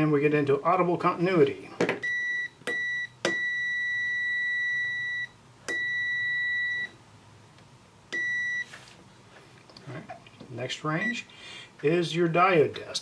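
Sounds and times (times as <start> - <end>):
multimeter continuity beep: 2.0 - 7.0, 8.1 - 8.7.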